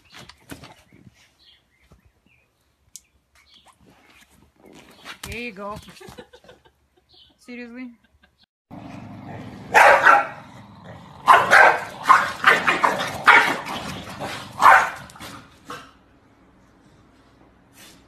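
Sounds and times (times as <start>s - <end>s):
dog barking: 9.7s - 10.5s, 11.2s - 15.4s.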